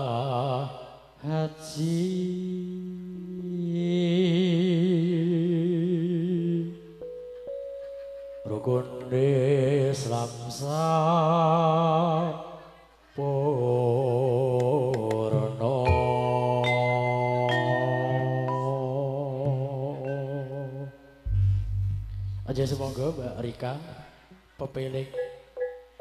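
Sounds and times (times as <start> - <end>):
man chanting into microphone: 0.0 - 6.7, 22.4 - 25.2.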